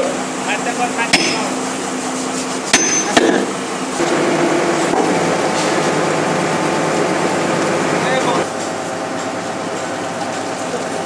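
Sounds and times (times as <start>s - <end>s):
engine hum: 0.0s - 11.0s
sledgehammer striking metal: 1.1s - 1.6s, 2.7s - 3.5s.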